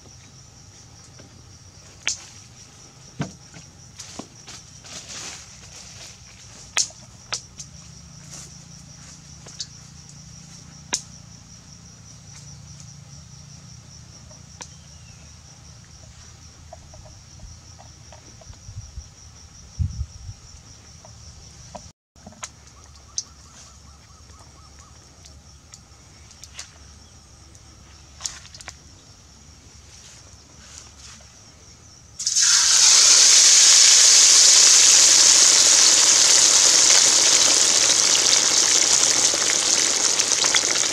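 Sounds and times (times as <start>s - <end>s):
insect chirring: 31.9s - 40.9s.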